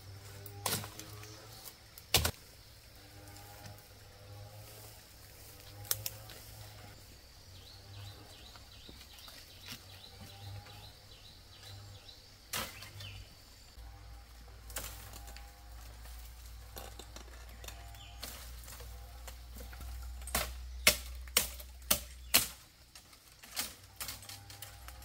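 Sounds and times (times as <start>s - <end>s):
bamboo stems snapping and rustling: 0.2s - 2.5s, 4.6s - 6.9s, 8.5s - 10.7s, 12.5s - 13.2s, 14.5s - 25.0s.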